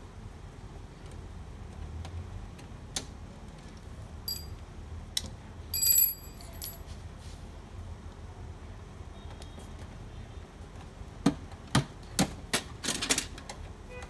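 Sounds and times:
metal tool clinking on metal: 4.3s - 4.5s, 5.8s - 6.8s.

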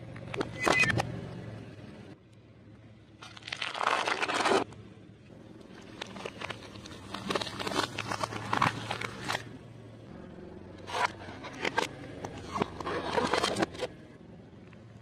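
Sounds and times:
apples crushed under car tyre: 3.2s - 4.7s.

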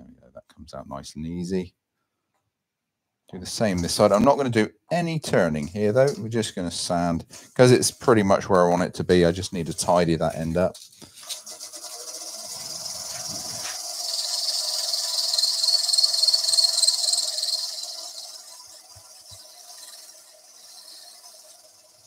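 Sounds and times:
sandpaper hissing on spinning wood: 10.3s - 22.0s
wood lathe humming: 11.2s - 22.0s.

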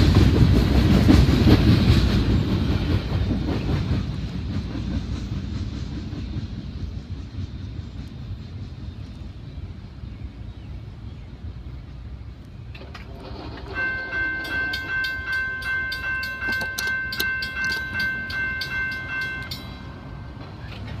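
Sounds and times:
railroad crossing bell ringing: 13.2s - 21.0s.

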